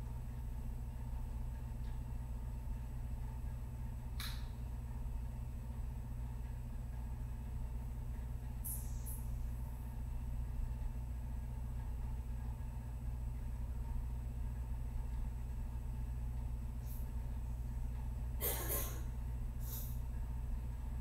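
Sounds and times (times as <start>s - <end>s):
steady low hum: 0.0s - 21.0s
short hissing noises: 8.6s - 9.3s, 19.6s - 20.0s.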